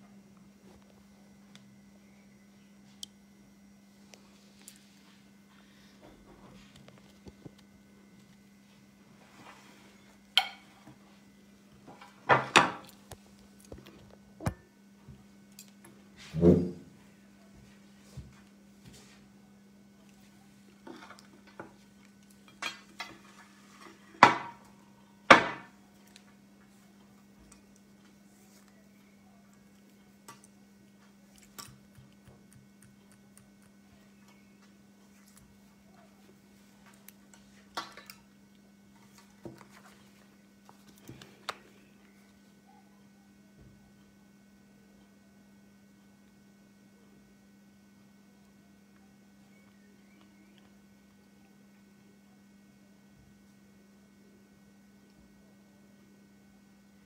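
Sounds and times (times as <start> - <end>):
faint steady hum: 0.0 - 57.0.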